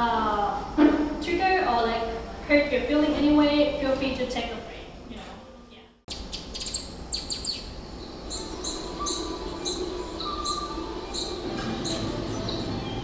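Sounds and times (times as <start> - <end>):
low steady hum: 0.0 - 13.0
recorded birdsong chirps: 6.1 - 13.0.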